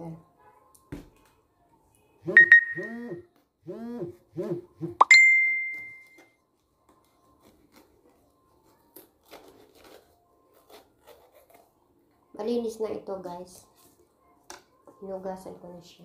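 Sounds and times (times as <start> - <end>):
short rising and falling blips: 2.2 - 5.7
swoop into bell-like ding: 5.0 - 6.1.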